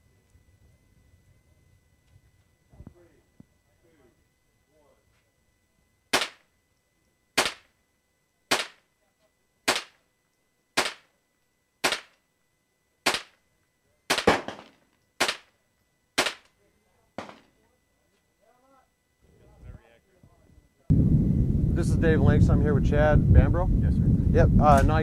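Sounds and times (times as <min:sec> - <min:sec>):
rifle shots: 0:06.1 - 0:06.5, 0:07.4 - 0:07.7, 0:08.5 - 0:08.8, 0:09.7 - 0:10.0, 0:10.8 - 0:11.1, 0:11.8 - 0:12.2, 0:13.0 - 0:13.4, 0:14.1 - 0:15.5, 0:16.2 - 0:16.5, 0:17.2 - 0:17.5.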